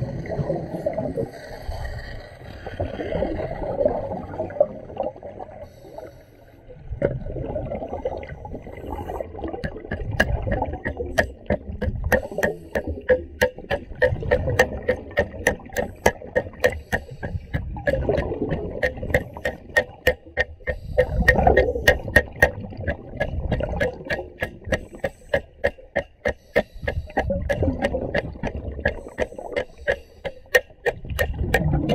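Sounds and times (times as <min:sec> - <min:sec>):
diver's breath bubbling underwater: 0:07.1 - 0:20.0, 0:20.6 - 0:25.6.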